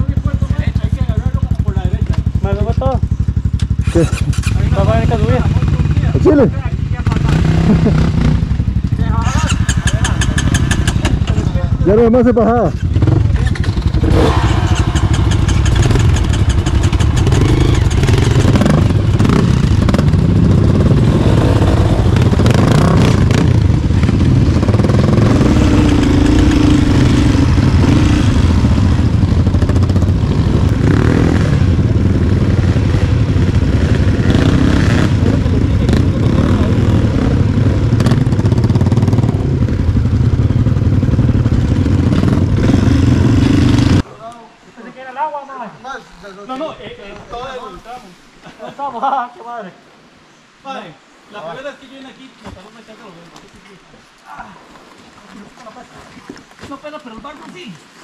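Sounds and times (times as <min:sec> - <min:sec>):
dirt bike engine running: 0:00.0 - 0:44.1.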